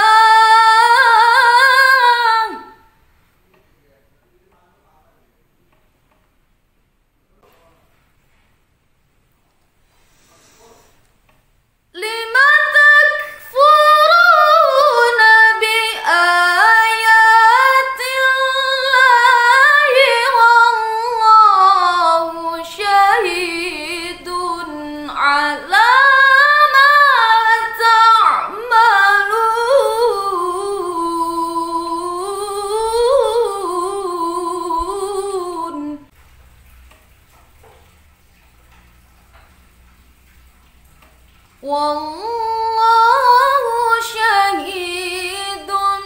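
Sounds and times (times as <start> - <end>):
woman reciting melodically: 0.0 - 3.1, 11.9 - 36.2, 41.6 - 46.0.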